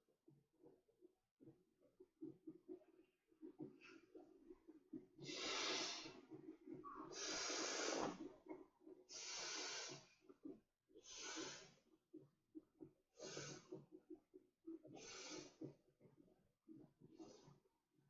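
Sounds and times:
person breathing hard: 5.2 - 6.4, 7.1 - 8.3, 9.1 - 10.2, 11.0 - 11.8, 13.2 - 13.8, 14.9 - 15.8.

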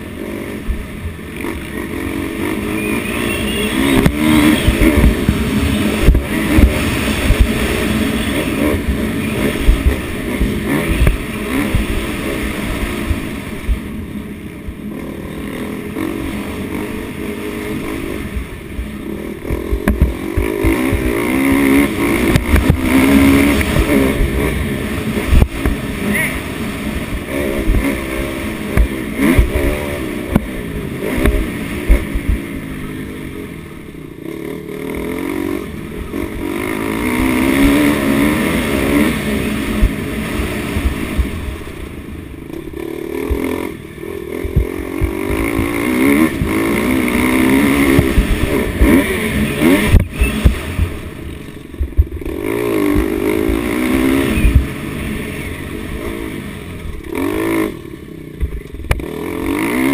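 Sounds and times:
dirt bike engine revving: 0.0 - 59.9
bike knocks and rattles: 19.4 - 21.1, 51.8 - 53.6.

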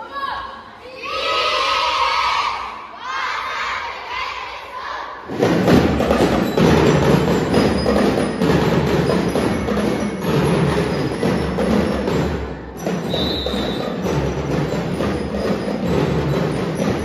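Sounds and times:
snare and bass drums marching: 5.3 - 17.0.

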